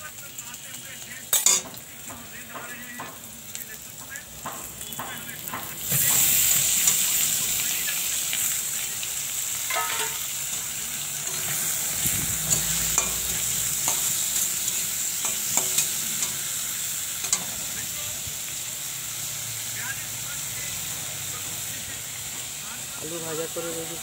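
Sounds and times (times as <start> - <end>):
food sizzling in a metal pan: 0.0 - 24.0
metal spatula scraping a pan: 9.6 - 16.6.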